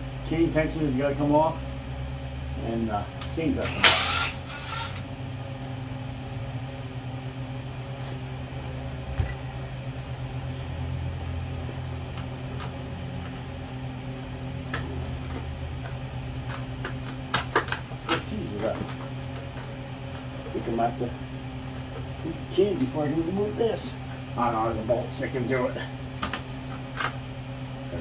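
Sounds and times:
steady low hum: 0.0s - 28.0s
cordless power tool burst: 3.6s - 5.0s.

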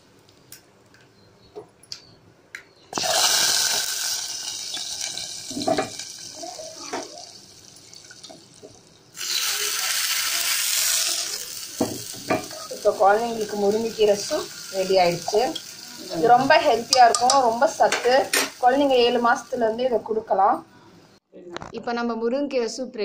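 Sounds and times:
hot oil sizzling: 2.9s - 20.4s.

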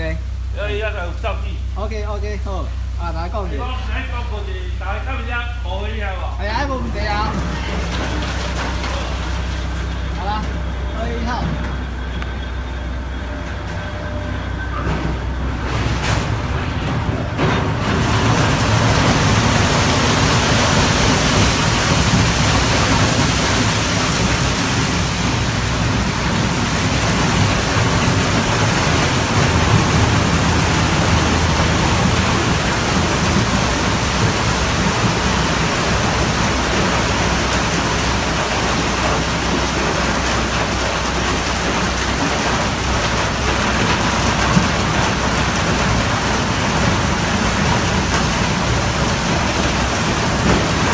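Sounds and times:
low machine hum: 0.0s - 50.9s
crushed ice pouring through chute: 6.4s - 11.2s, 17.4s - 50.9s.

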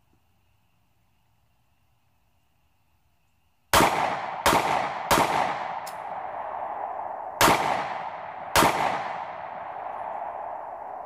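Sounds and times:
pistol shots with echo: 3.7s - 6.7s, 7.4s - 10.6s.

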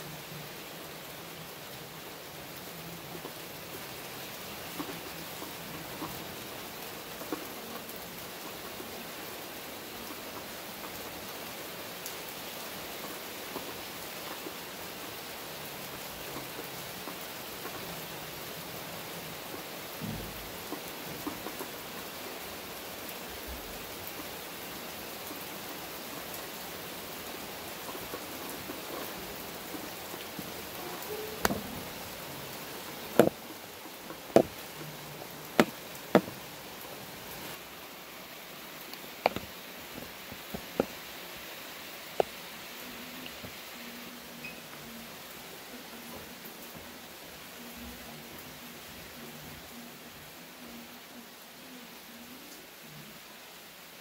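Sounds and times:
rain pouring: 0.0s - 54.0s
sharp knocks: 33.2s - 33.4s, 35.6s - 36.4s.

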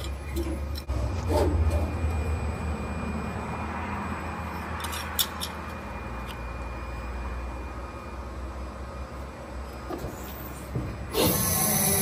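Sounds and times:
hydraulic pump humming: 0.0s - 12.0s.

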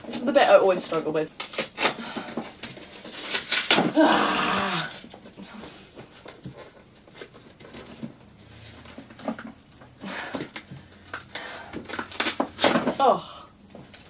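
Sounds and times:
cardboard tearing and crinkling: 1.3s - 8.3s, 10.4s - 13.1s
person grunting: 3.9s - 5.0s.

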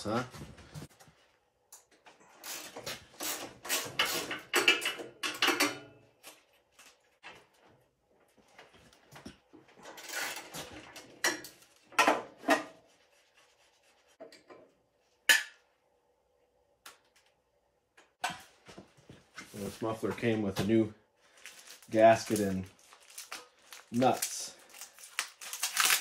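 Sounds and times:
tools scraping and clicking: 1.8s - 7.0s.

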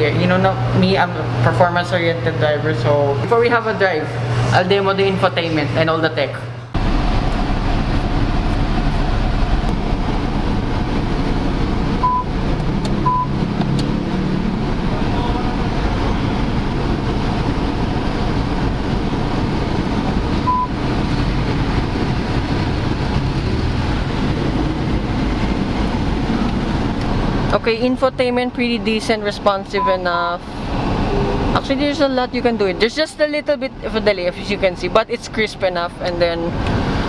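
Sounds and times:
car cabin noise: 6.8s - 23.3s.

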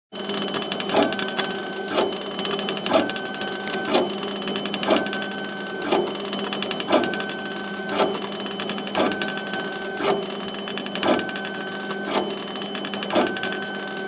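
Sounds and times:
steady machine hum: 0.2s - 14.0s.

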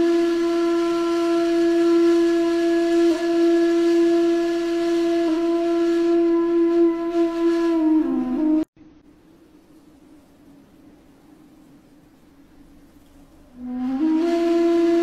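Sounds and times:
reedy wind instrument note: 0.0s - 8.7s, 13.6s - 15.0s.

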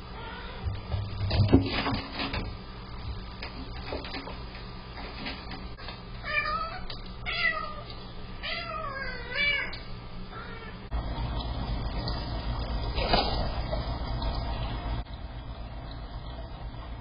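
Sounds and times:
cat meowing: 6.2s - 7.8s, 8.4s - 10.8s.

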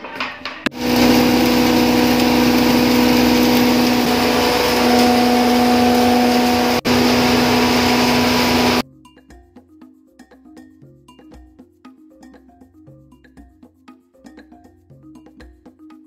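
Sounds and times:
mill grinding: 0.7s - 8.8s
motor hum: 0.7s - 8.8s.

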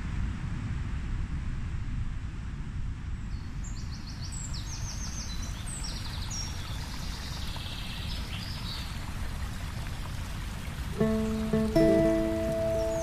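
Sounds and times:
waterfall rushing: 11.0s - 13.0s.

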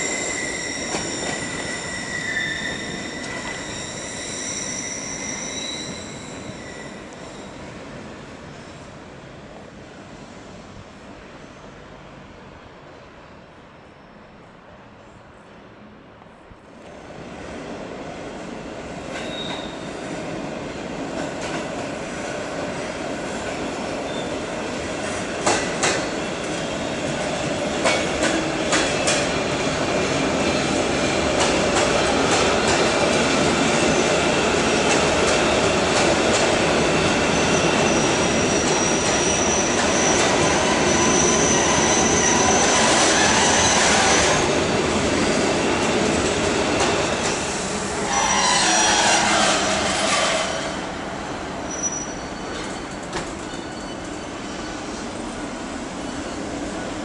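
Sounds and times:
high wheel squeal: 0.0s - 7.6s, 19.2s - 20.0s, 37.2s - 44.4s, 48.0s - 50.9s, 51.6s - 55.1s, 55.9s - 56.7s
freight train rumble: 0.0s - 57.0s.

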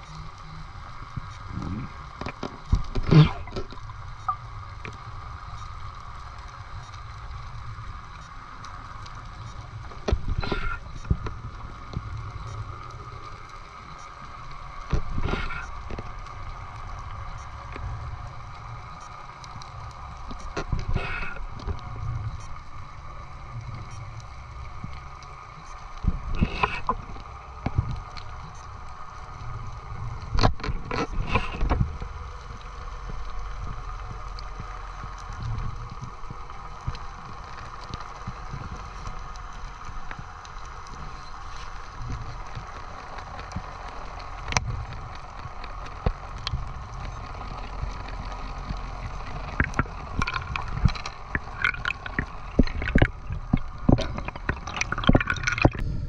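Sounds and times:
low rumble: 0.0s - 56.0s
water splashing rush: 45.5s - 55.9s.

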